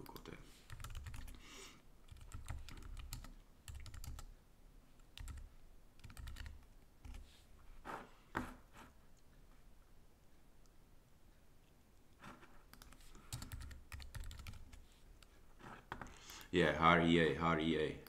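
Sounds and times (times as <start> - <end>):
typing on a keyboard: 0.0 - 1.4, 2.1 - 4.3, 5.0 - 7.2, 12.7 - 15.3.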